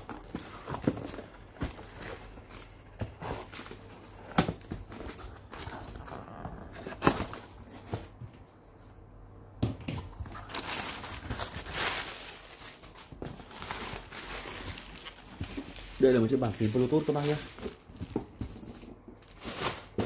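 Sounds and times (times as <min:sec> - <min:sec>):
cardboard flaps scraping and rustling: 0:00.0 - 0:08.2, 0:10.2 - 0:20.0
plastic packaging crinkling: 0:10.2 - 0:20.0.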